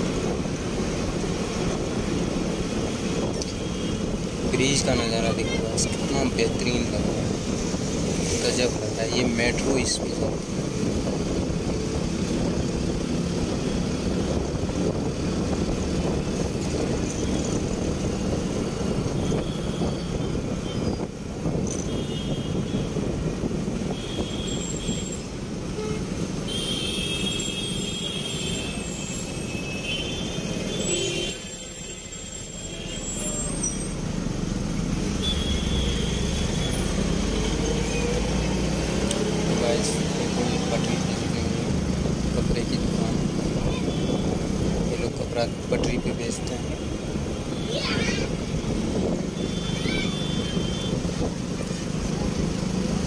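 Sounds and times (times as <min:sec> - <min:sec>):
rushing wind: 0:00.0 - 0:53.0
traffic: 0:00.0 - 0:53.0
vehicle horns: 0:19.1 - 0:21.0, 0:21.7 - 0:23.1, 0:23.9 - 0:33.8, 0:35.1 - 0:38.3, 0:43.6 - 0:44.4, 0:46.6 - 0:51.3.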